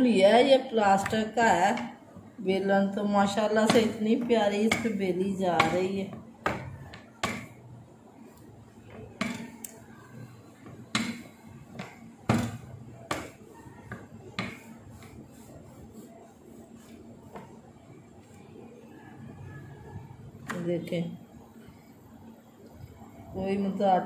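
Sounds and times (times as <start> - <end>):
rolling pin knocking on board: 3.5 - 7.7, 8.9 - 9.6, 10.6 - 15.2.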